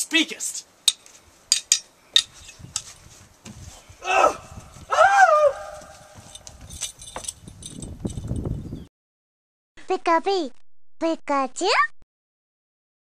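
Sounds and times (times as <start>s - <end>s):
prop swords clacking: 0.8s - 2.9s
loud high yell: 4.0s - 5.9s.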